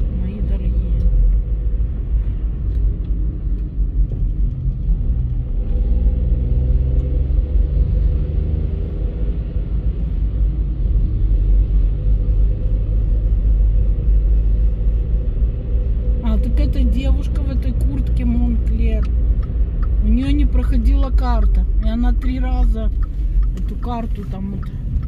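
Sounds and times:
car engine and tyres rumbling: 0:00.0 - 0:25.0.

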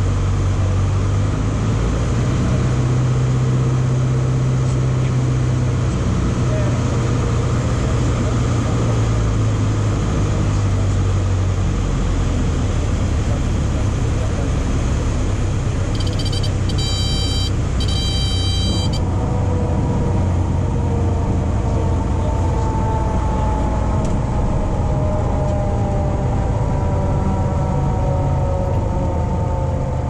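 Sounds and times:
aircraft engine and propeller drone: 0:00.0 - 0:30.0
high warning tone beeping: 0:15.9 - 0:19.0.

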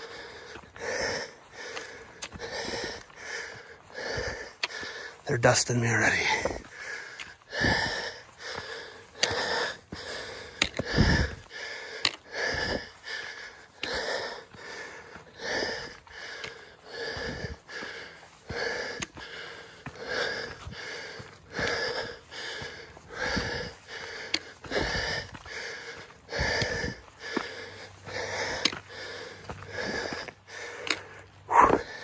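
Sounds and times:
person breathing hard: 0:00.0 - 0:32.0
sharp clicks: 0:09.2 - 0:09.4, 0:30.8 - 0:31.1.

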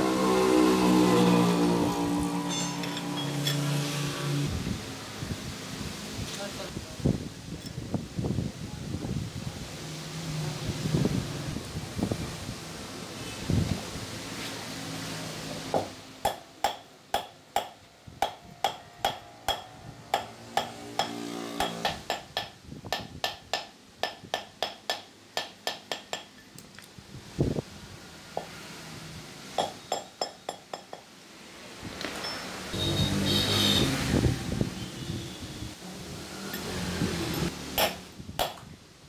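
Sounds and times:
hammer striking metal tube: 0:15.8 - 0:26.4, 0:37.8 - 0:38.6.

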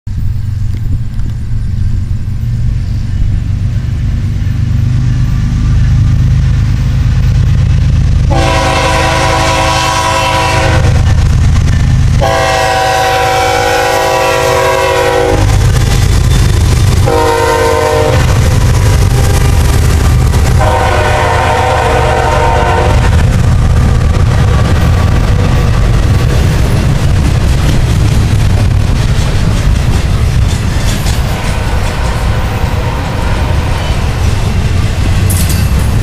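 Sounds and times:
diesel locomotive rumbling: 0:00.1 - 0:36.0
train air horn blasts: 0:08.3 - 0:11.1, 0:12.2 - 0:15.8, 0:17.0 - 0:23.4.

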